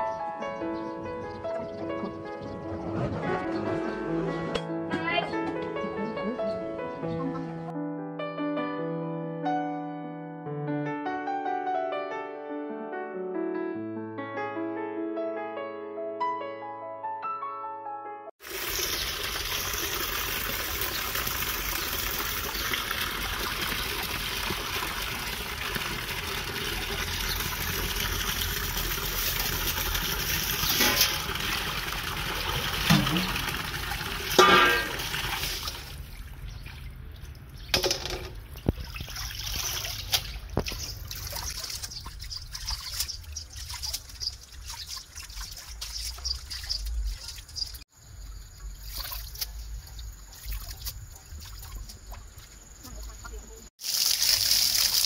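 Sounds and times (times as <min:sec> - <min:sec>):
tap water running into basin: 0:18.4 - 0:47.8, 0:48.4 - 0:55.0
water sloshing as leaves are washed: 0:18.4 - 0:55.0.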